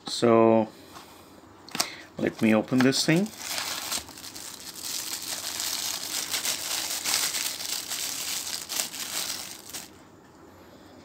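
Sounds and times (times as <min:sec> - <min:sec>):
plastic bag crinkling: 0:02.9 - 0:10.0.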